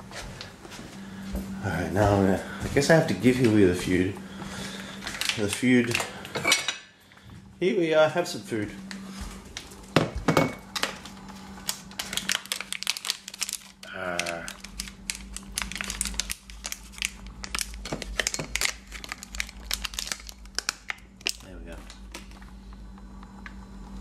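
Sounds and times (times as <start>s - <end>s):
food pouch crinkling: 5.0s - 6.0s, 10.9s - 22.4s.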